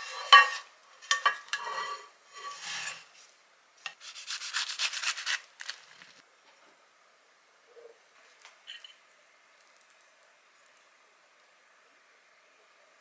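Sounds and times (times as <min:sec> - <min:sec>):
tortilla scraping out of pan: 0:01.5 - 0:03.1
knife sawing crisp crust: 0:04.0 - 0:05.4.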